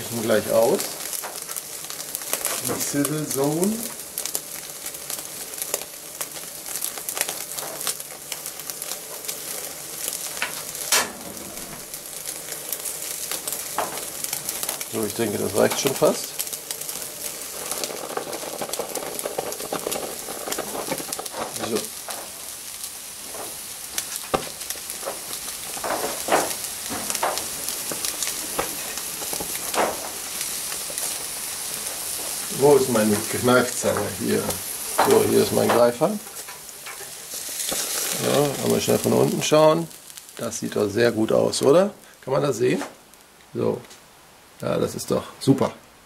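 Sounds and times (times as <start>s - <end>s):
steak sizzling on a grill: 0.0s - 45.6s
fat spitting and crackling: 10.2s - 35.6s.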